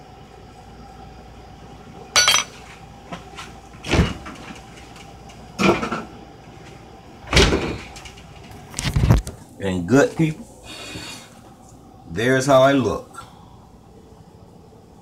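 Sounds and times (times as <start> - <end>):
metal spoon clinking on tin can: 2.2 - 2.5.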